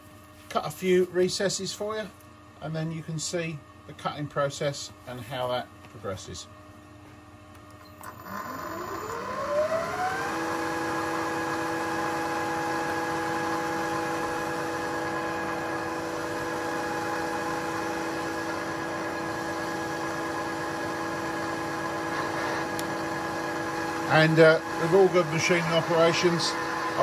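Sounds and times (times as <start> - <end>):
milling machine spindle whine: 8.0 - 27.0.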